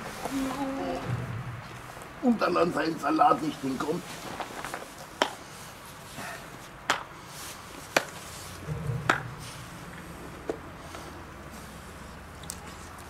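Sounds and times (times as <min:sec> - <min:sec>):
low rumble: 0:00.8 - 0:02.3, 0:08.6 - 0:10.4.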